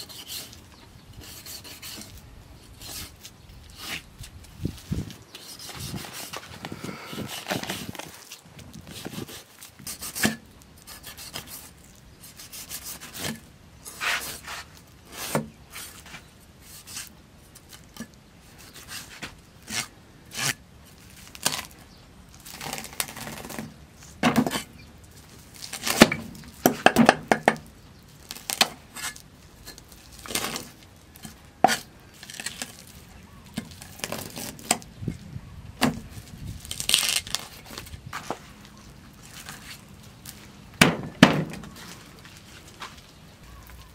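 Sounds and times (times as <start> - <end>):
cleaver scraping fish scales: 0.0 - 0.6, 1.2 - 17.1.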